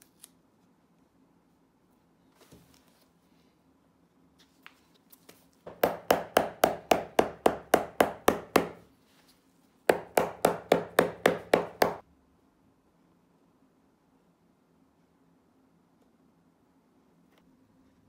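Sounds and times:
hammer striking rubber sole: 0:05.7 - 0:08.8, 0:09.9 - 0:12.0.

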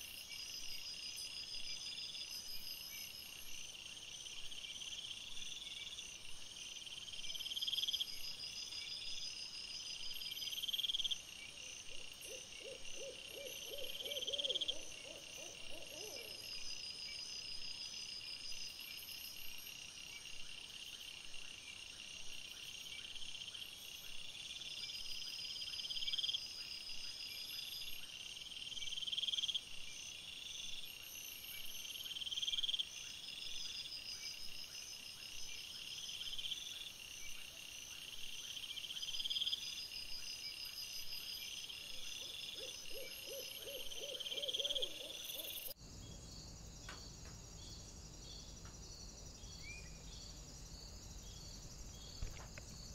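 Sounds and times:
high cricket chirring: 0:38.1 - 0:52.9.

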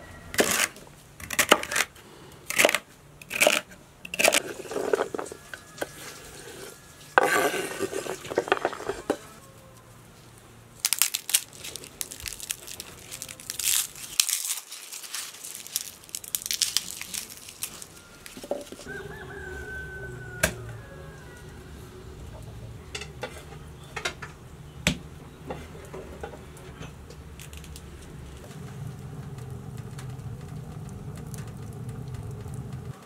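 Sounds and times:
rooster crowing: 0:00.0 - 0:00.6, 0:04.4 - 0:10.1, 0:13.0 - 0:13.6, 0:17.6 - 0:23.1
garlic skins crackling: 0:00.2 - 0:09.4, 0:10.7 - 0:21.6, 0:22.2 - 0:33.0.

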